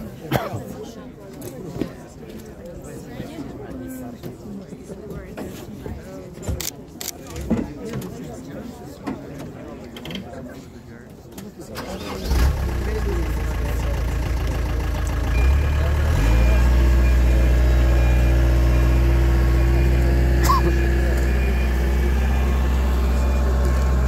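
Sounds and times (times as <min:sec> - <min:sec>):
heavy machine engine running: 0:11.9 - 0:24.0.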